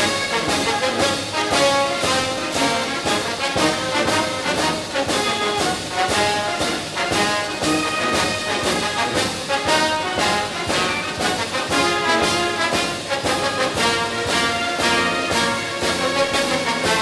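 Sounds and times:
brass instrumental music with beat: 0.0 - 17.0.

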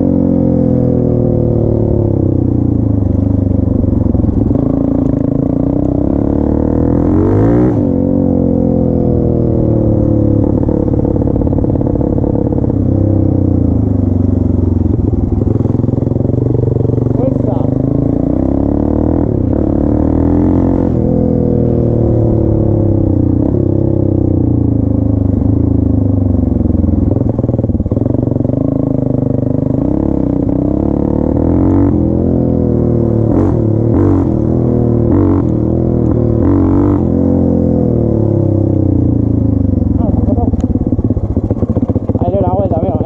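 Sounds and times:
motorcycle engine revving: 0.0 - 43.0.

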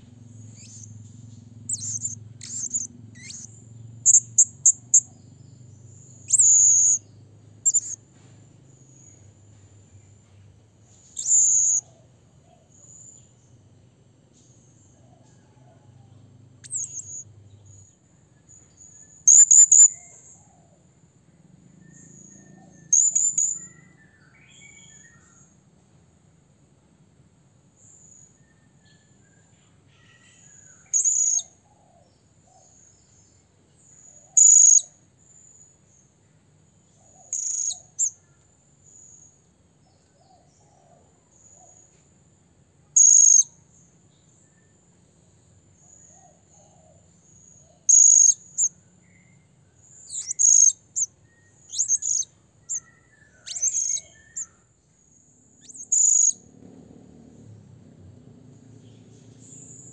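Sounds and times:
parrot shrill high calls: 1.7 - 3.5, 11.2 - 11.8, 50.1 - 51.1, 51.7 - 54.5.

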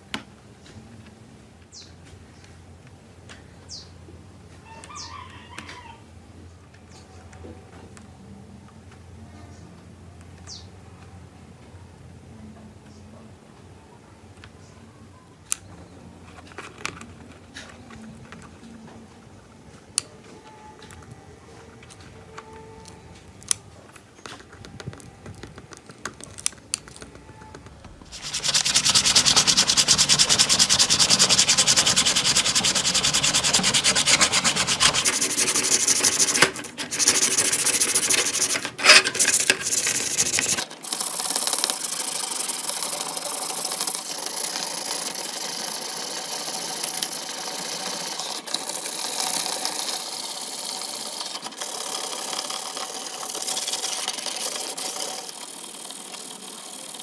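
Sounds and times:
sandpaper rubbing on plastic: 28.0 - 40.7.

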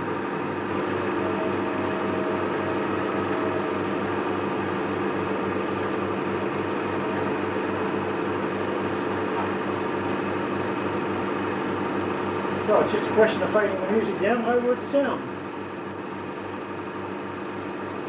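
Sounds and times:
film projector clattering: 0.7 - 18.0.

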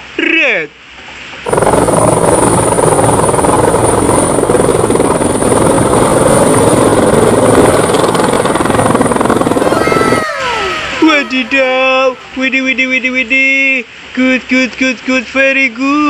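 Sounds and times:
high turbine whine: 1.4 - 13.9
helicopter rotor beating: 1.5 - 11.8.

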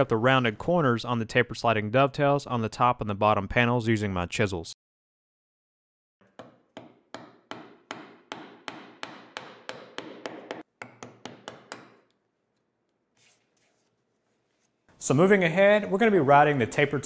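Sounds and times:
mallet striking chisel: 6.2 - 12.2.

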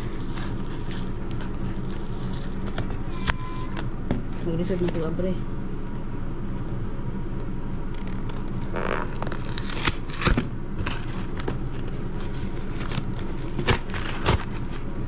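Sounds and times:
steady low hum: 0.0 - 15.0
cardboard box tearing: 8.7 - 14.8.

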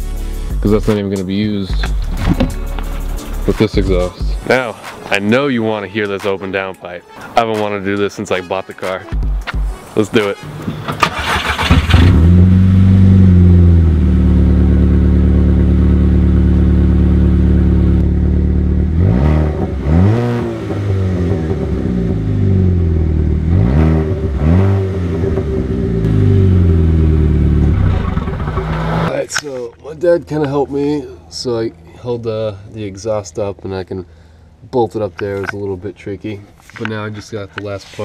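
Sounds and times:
car engine idling and revving: 10.5 - 29.2.

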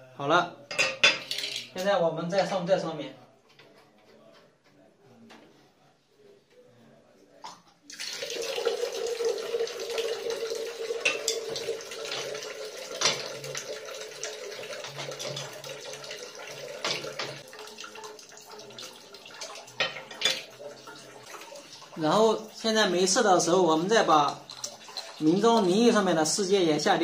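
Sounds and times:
water running from a tap: 7.9 - 27.0.

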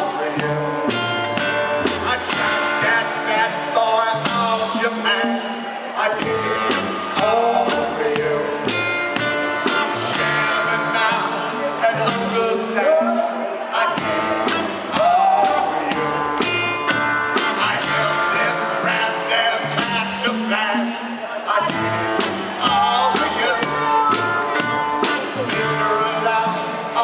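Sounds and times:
acoustic guitar: 0.0 - 27.0
person singing: 0.0 - 27.0
steady beat: 0.0 - 27.0.

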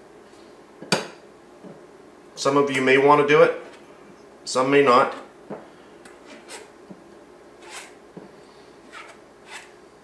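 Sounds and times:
spatula scraping metal sieve: 7.6 - 8.0, 8.9 - 9.7.

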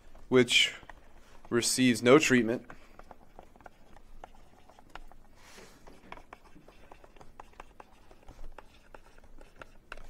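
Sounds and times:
stylus tapping on tablet screen: 2.7 - 10.0.

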